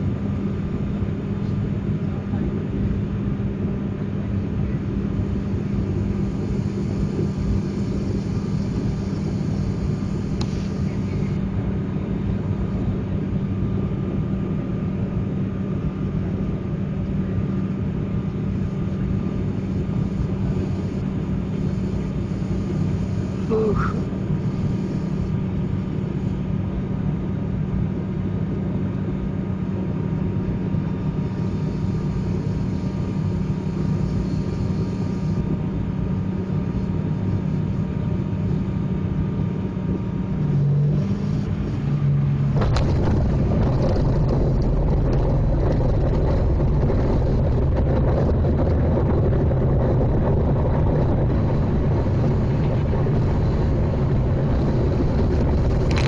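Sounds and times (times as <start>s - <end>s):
turboprop engines droning: 0.0s - 56.0s
rumble of landing roll: 42.0s - 56.0s
wheels thudding on runway: 42.4s - 56.0s.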